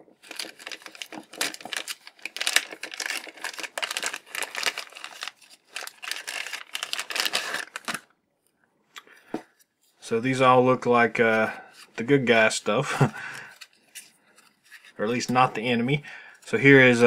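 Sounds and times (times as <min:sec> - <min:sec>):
plastic bag crinkling: 0:00.2 - 0:08.1.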